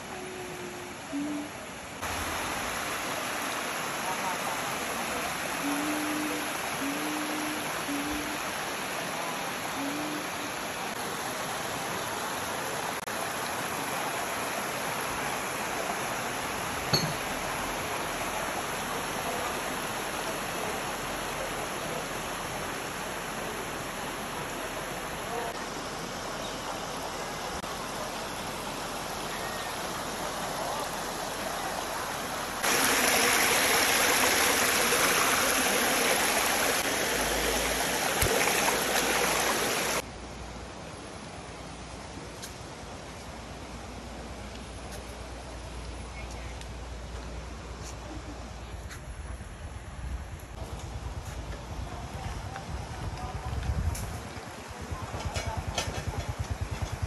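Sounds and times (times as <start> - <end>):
stream rushing over rock: 0.0 - 40.1.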